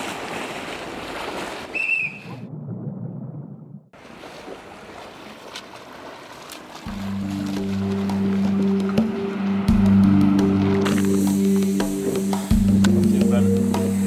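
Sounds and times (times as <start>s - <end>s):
pool water lapping and splashing: 0.0s - 2.4s, 3.9s - 14.0s
short high whistle: 1.7s - 2.3s.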